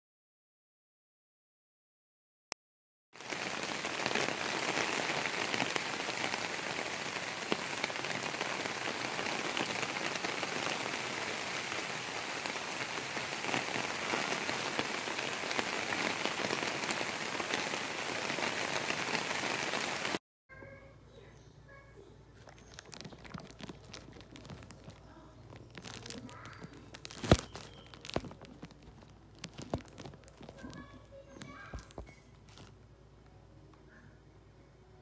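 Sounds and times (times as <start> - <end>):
steady rain falling: 3.2 - 20.2, 22.7 - 32.7.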